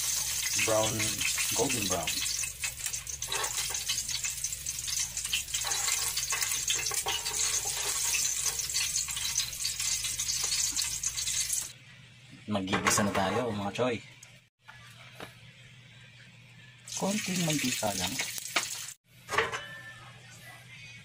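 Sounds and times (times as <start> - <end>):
pork deep-frying in oil: 0.0 - 11.8, 16.9 - 19.0.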